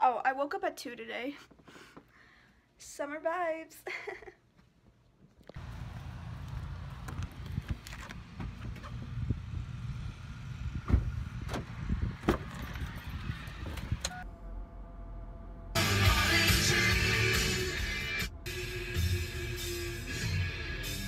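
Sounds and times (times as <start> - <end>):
steady low rumble: 5.6 - 21.0.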